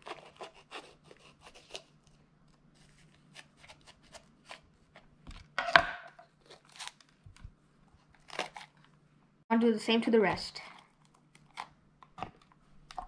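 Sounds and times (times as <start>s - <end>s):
knife cutting bell pepper: 0.0s - 2.0s, 2.8s - 4.6s.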